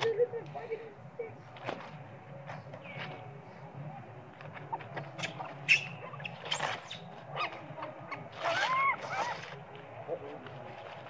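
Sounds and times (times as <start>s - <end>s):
baby monkey squealing: 4.7s - 9.6s.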